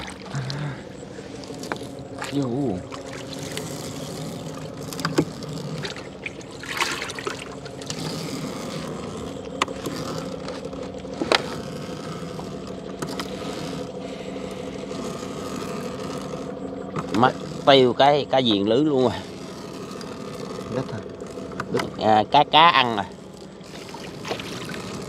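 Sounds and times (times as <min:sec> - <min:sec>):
water trickling and splashing: 0:00.0 - 0:13.9, 0:23.0 - 0:25.0
boat engine running: 0:00.0 - 0:25.0.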